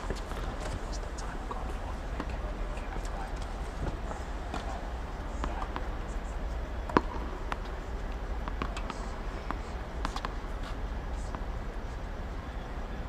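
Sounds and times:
low steady hum: 0.0s - 13.0s
tennis ball struck by rackets: 3.8s - 11.8s.

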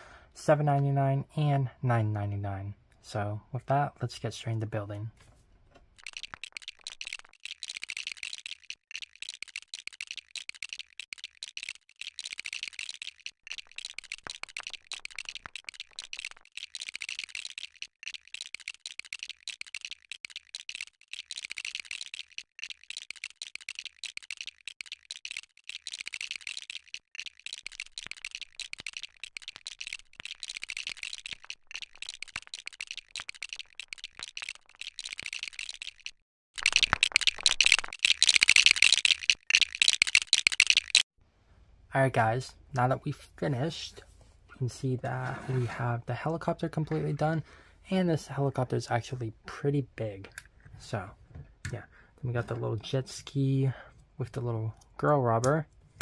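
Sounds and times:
plastic pieces clicking and rattling: 5.8s - 41.0s.

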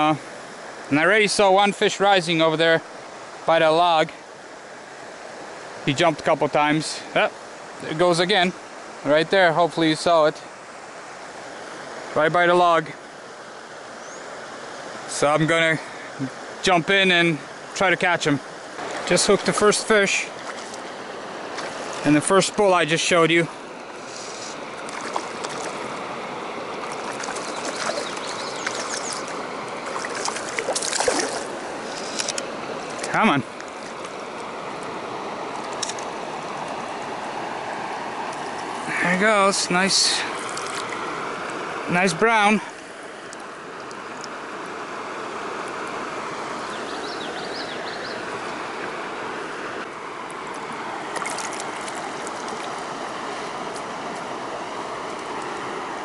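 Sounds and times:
creek flowing: 0.0s - 56.0s
fish splashing at surface: 24.1s - 25.9s, 26.8s - 33.1s, 51.1s - 52.8s.

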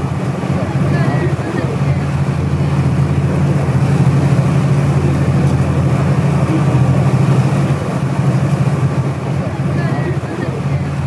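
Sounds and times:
boat engines droning: 0.0s - 11.0s
rushing water: 0.0s - 11.0s
wind: 0.0s - 11.0s.

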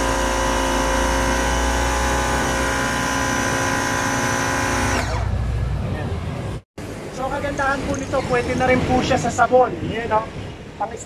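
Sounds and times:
pressure washer whine: 0.0s - 5.7s.

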